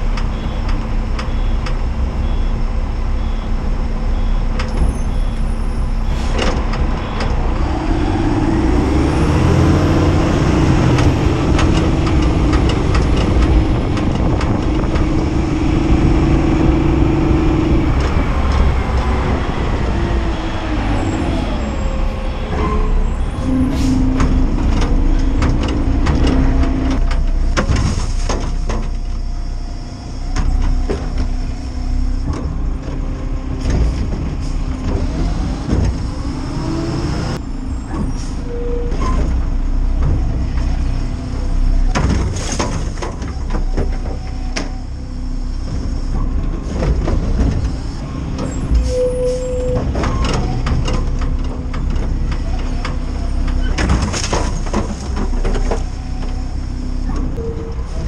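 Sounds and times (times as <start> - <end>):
garbage truck engine revving: 4.0 - 58.0
metal clanks and knocks: 10.8 - 17.1, 22.5 - 29.2, 41.7 - 44.8, 45.7 - 56.4.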